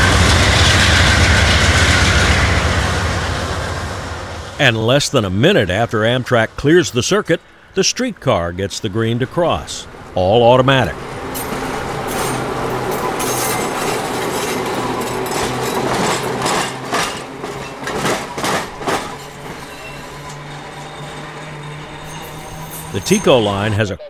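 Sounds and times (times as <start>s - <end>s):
streetcar running noise: 0.0s - 24.0s
streetcar wheels clacking: 8.6s - 23.8s.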